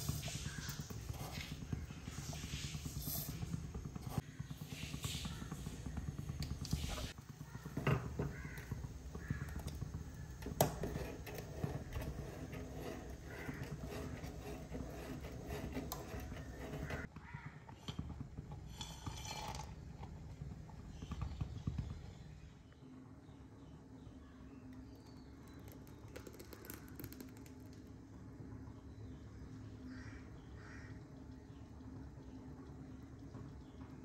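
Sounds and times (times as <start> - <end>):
spoon stirring in metal pan: 7.7 - 17.1.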